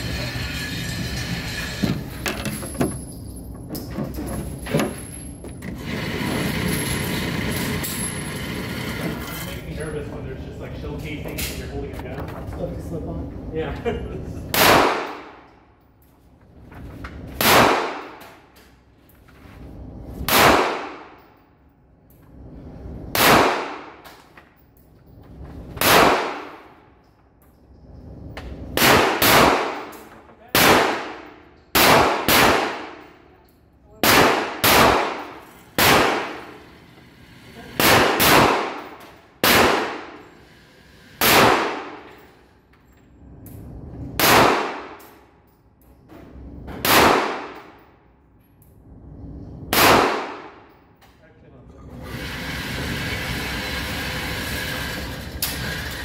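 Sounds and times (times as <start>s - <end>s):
gunshots: 14.5s - 15.4s, 17.4s - 18.2s, 20.3s - 21.2s, 23.1s - 24.0s, 25.8s - 26.8s, 28.8s - 29.9s, 30.5s - 33.1s, 34.0s - 36.6s, 37.8s - 40.2s, 41.2s - 42.1s, 44.2s - 45.0s, 46.8s - 47.8s, 49.7s - 50.7s.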